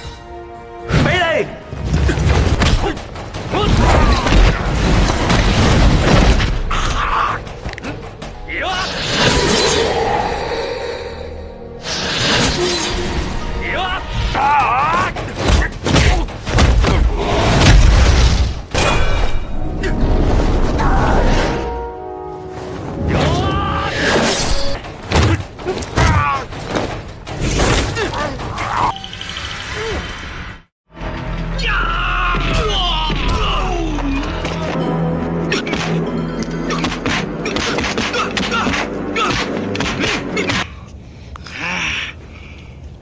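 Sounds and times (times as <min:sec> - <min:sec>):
film score music: 0:00.0 - 0:43.0.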